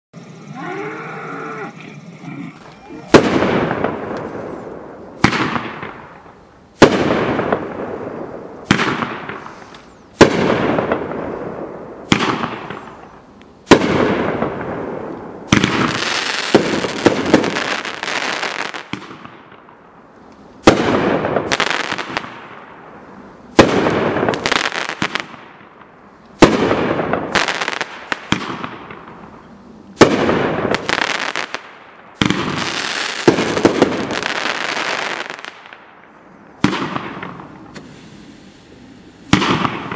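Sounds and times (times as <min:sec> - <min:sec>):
fireworks sharp aerial reports: 0:02.0 - 0:04.5
fireworks crackling: 0:02.0 - 0:39.9.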